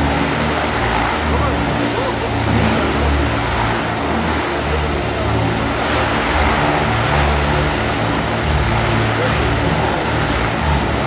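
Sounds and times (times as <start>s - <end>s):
helicopter rotor blades whirring: 0.0s - 11.0s
low hum shifting in pitch: 0.0s - 11.0s.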